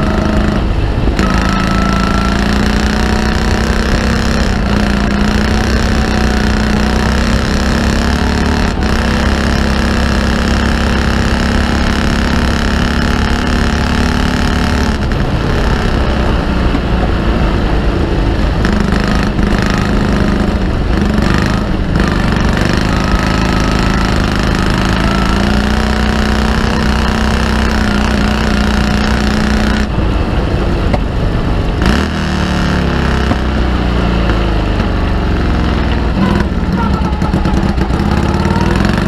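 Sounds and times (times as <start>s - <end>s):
racing engine running hard: 0.0s - 39.0s.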